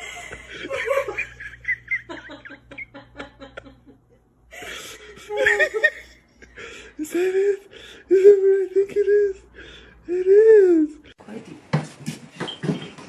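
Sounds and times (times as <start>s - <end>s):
person laughing: 0.0s - 9.5s.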